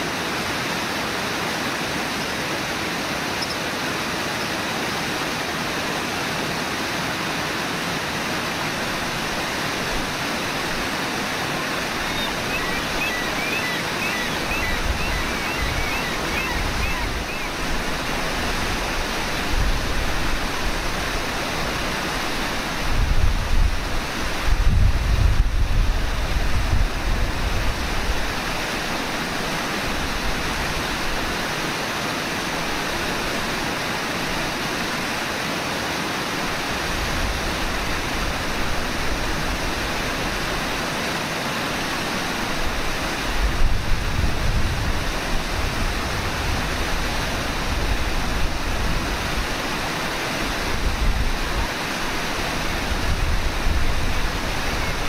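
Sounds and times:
fast river water rushing: 0:00.0 - 0:55.0
wind buffeting microphone: 0:22.8 - 0:28.2, 0:43.2 - 0:49.6.

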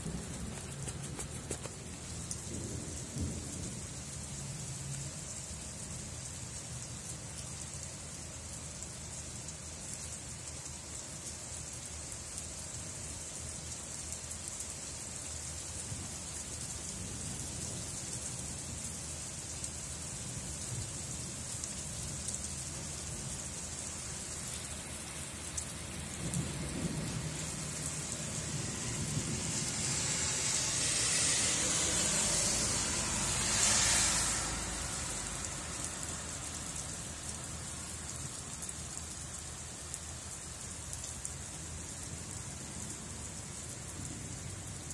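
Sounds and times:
low rumble of thunder: 0:00.0 - 0:01.1, 0:01.8 - 0:05.0, 0:25.8 - 0:33.7
steady rain hissing: 0:00.0 - 0:44.9.

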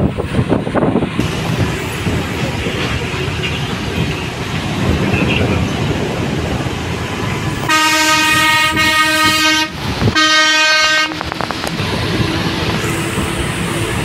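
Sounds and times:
vehicle rumble: 0:00.0 - 0:14.0
vehicle horn blasts: 0:07.7 - 0:11.4.

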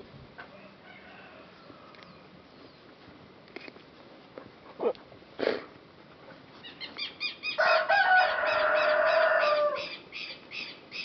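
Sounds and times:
rooster crowing: 0:00.5 - 0:02.0, 0:07.4 - 0:10.0.

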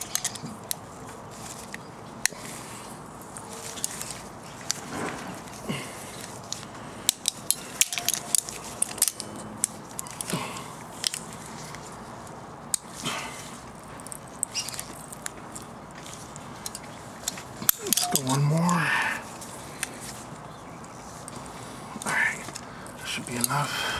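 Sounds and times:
sharp metal clicks: 0:00.0 - 0:00.8, 0:06.2 - 0:11.8, 0:16.6 - 0:18.8.

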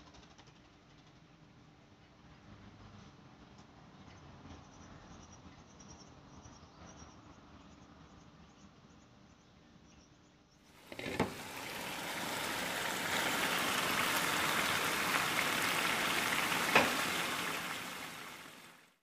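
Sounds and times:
gravy simmering and sizzling: 0:10.8 - 0:18.9.

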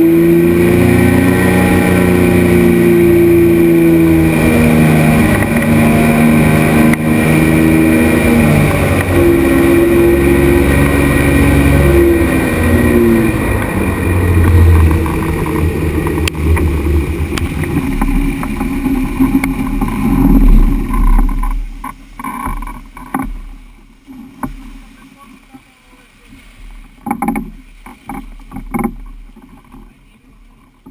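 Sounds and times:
propeller aircraft engine running: 0:00.0 - 0:24.7
hull rushing on water: 0:00.0 - 0:30.9.

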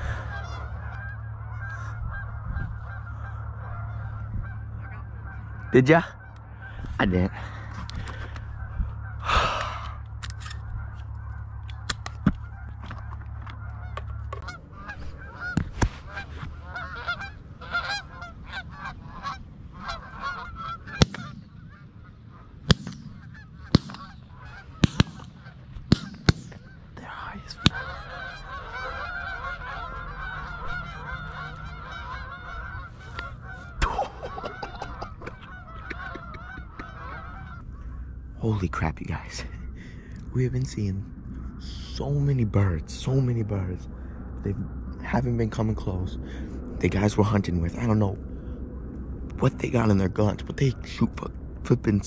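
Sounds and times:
geese honking: 0:00.0 - 0:48.6
low steady hum: 0:00.0 - 0:52.0
sharp crack: 0:20.9 - 0:21.6, 0:22.6 - 0:26.8, 0:33.8 - 0:36.0.

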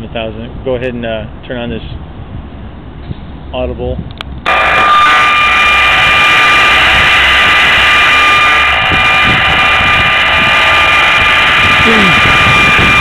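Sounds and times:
radiation meter buzzing: 0:04.4 - 0:13.0
steady high tone: 0:04.5 - 0:13.0.

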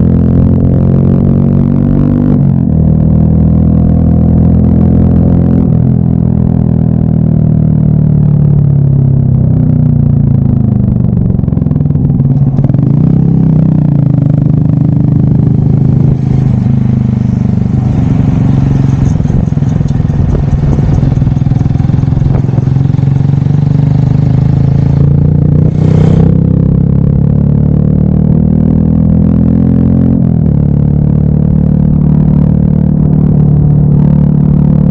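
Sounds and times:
motorcycle engine running: 0:00.0 - 0:34.9
road noise: 0:00.0 - 0:34.9
wind noise: 0:14.8 - 0:26.5
short rushing noise: 0:25.6 - 0:26.4.

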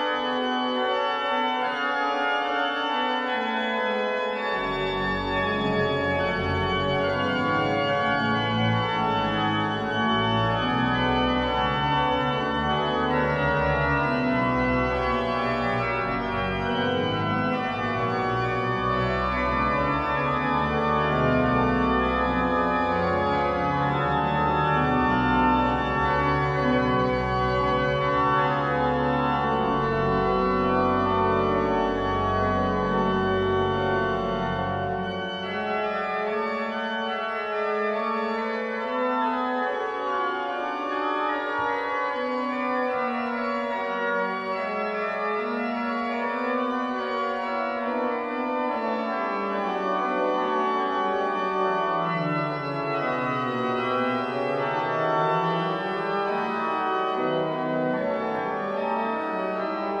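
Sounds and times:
pipe organ playing: 0:00.0 - 1:00.0.

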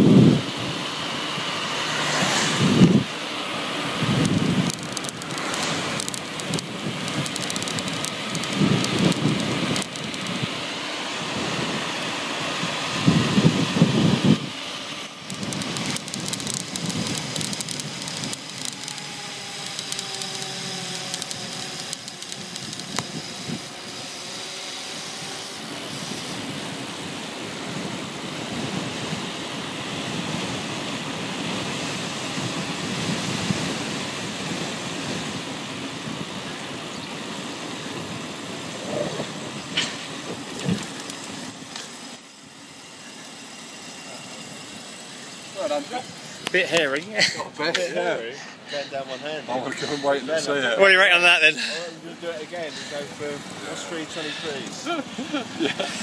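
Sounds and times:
wind rushing over microphone: 0:00.0 - 0:00.8, 0:02.4 - 0:03.1, 0:04.0 - 0:04.9, 0:12.6 - 0:14.4
wheels rolling on asphalt: 0:00.0 - 0:56.0.

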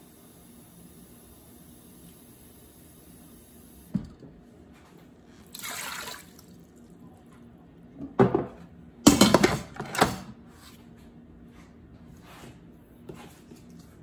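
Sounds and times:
water pouring into metal pot: 0:05.5 - 0:06.6.

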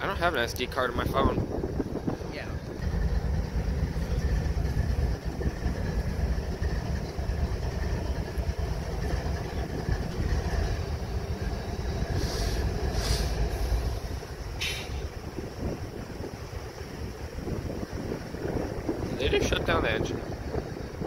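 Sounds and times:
locomotive diesel engine rumbling: 0:00.0 - 0:21.0
short hissing bursts: 0:12.2 - 0:13.9.

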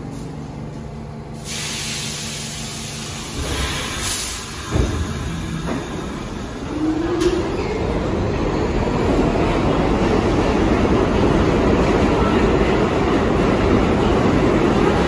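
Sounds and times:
air hissing: 0:01.4 - 0:06.8.

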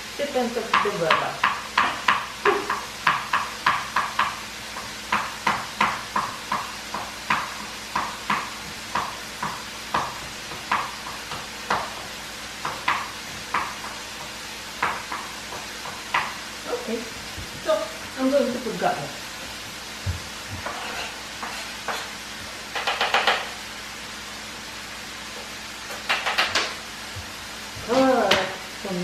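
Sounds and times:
knife chopping on cutting board: 0:00.7 - 0:16.4, 0:20.0 - 0:23.6, 0:25.9 - 0:28.6.

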